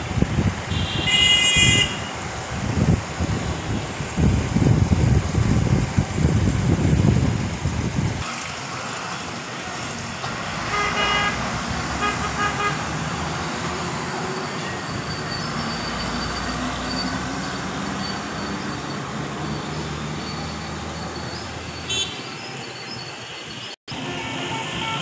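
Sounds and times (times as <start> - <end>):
loud low traffic rumble: 0.0 - 25.0
vehicle horn honking: 0.7 - 2.1, 10.7 - 12.9, 21.9 - 22.2, 24.0 - 25.0
heavy truck engine passing: 2.2 - 21.9.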